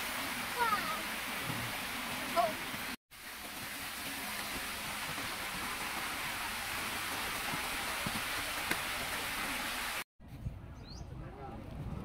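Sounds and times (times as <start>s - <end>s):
bird chirp: 10.7s - 11.1s.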